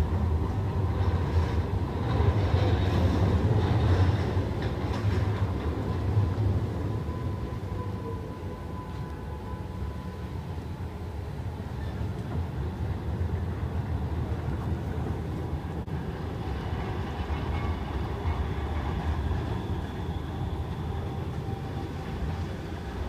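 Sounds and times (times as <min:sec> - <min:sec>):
tram rumble: 0:00.0 - 0:23.0.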